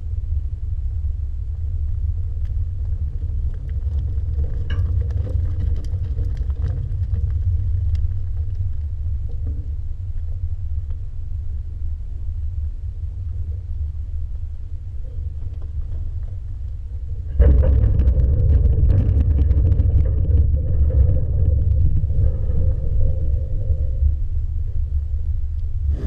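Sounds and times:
wind buffeting microphone: 13.4 - 26.0
clicks and knocks: 17.3 - 23.8.

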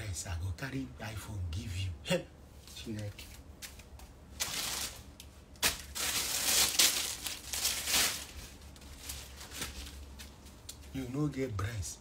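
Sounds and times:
rustling and crinkling at microphone: 2.5 - 11.1.

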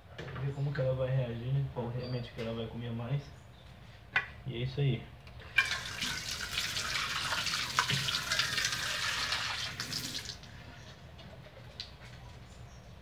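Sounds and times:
tap water running into sink: 5.6 - 10.4.

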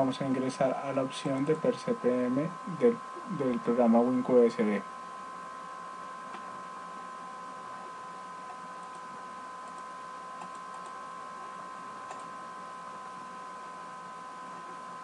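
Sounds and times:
high electrical hum: 0.0 - 15.0
computer mouse clicks: 8.4 - 11.0, 12.0 - 12.3.

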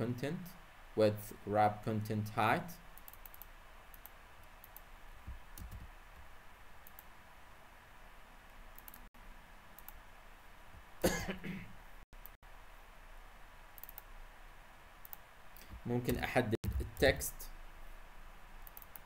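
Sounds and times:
computer clicks: 3.0 - 4.9, 5.5 - 5.9, 6.8 - 7.1, 8.7 - 9.1, 9.8 - 10.0, 13.8 - 14.1, 15.0 - 17.2, 18.6 - 19.0
person coughing: 11.0 - 11.7.

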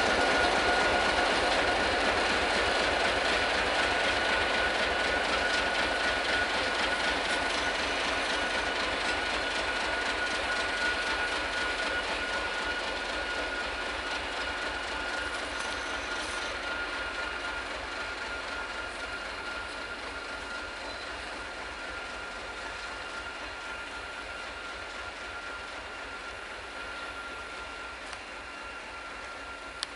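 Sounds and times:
diesel locomotive engine rumble: 0.0 - 29.9
steady high whine: 0.0 - 29.9.

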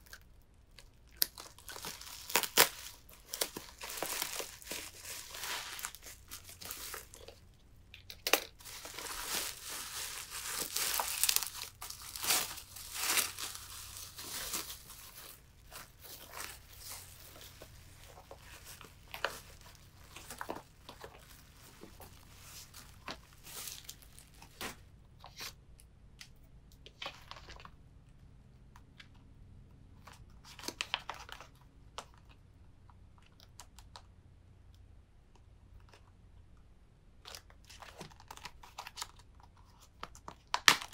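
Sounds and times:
bubble wrap crinkling: 0.0 - 24.8.

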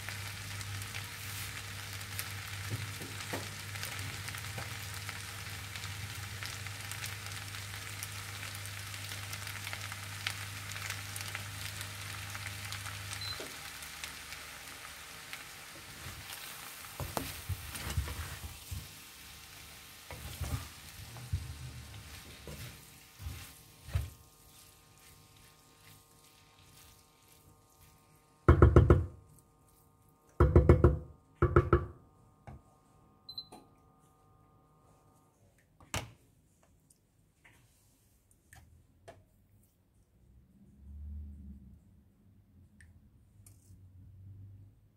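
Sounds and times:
noodles sizzling in a pan: 0.0 - 30.4
wooden spatula scraping: 15.8 - 19.0, 19.6 - 28.4.

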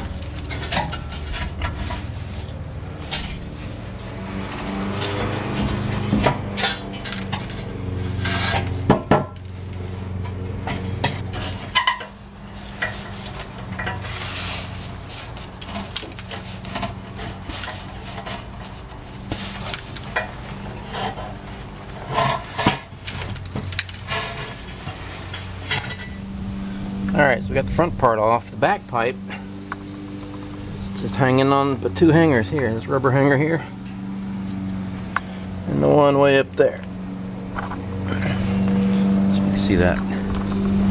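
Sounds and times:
metal clanks and scrapes: 0.0 - 27.2, 33.6 - 35.3
steady low hum: 0.0 - 40.9.

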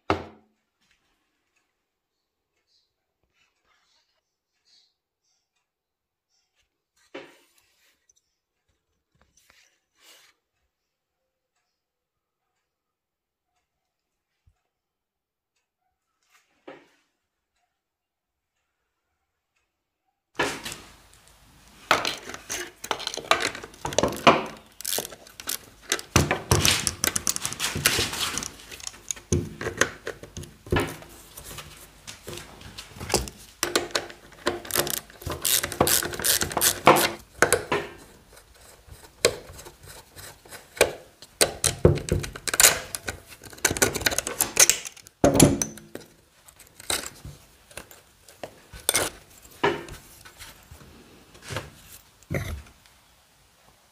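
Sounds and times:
spring and metal parts rattling: 21.9 - 31.6, 33.1 - 49.6
tools clinking on metal: 41.4 - 49.2.

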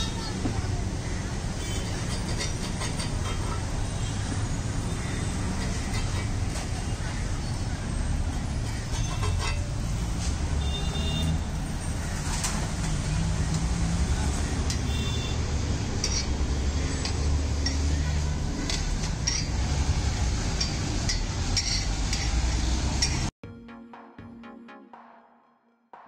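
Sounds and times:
metal spatula scraping griddle: 1.7 - 3.8, 8.7 - 10.3, 16.0 - 23.3.

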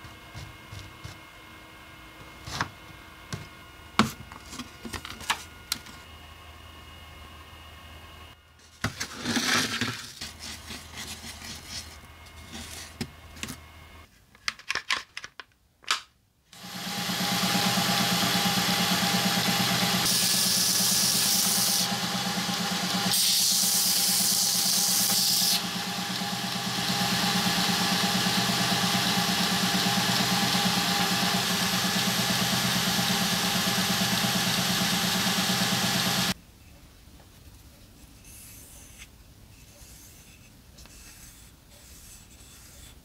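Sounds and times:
belt sander running: 16.6 - 36.4.

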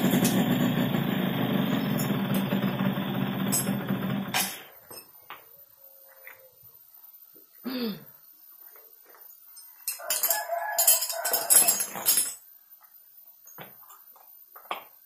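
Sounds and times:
rooster crowing: 10.0 - 12.0.

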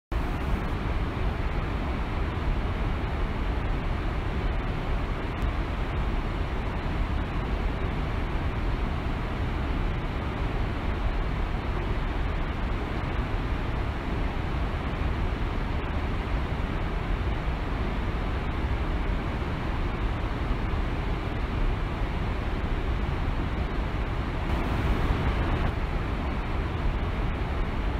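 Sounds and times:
waterfall rushing: 24.4 - 25.8.

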